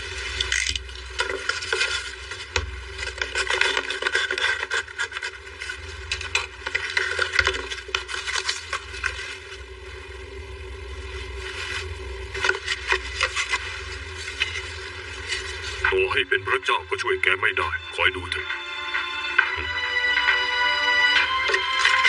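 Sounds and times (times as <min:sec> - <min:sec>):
objects rubbing and knocking: 0:00.3 - 0:09.6, 0:11.3 - 0:16.0, 0:21.0 - 0:22.0
small clicks and scrapes: 0:00.3 - 0:09.6, 0:11.5 - 0:15.9.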